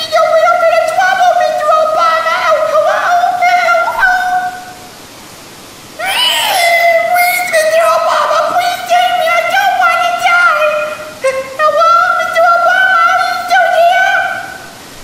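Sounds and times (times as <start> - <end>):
high-pitched sing-song voice: 6.0 - 14.7.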